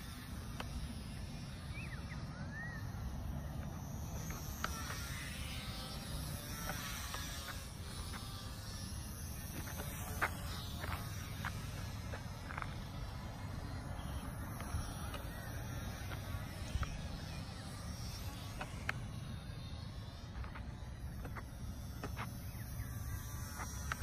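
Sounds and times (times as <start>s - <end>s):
distant rc plane motor whine: 0.0s - 24.0s
bird chirps: 1.6s - 3.0s.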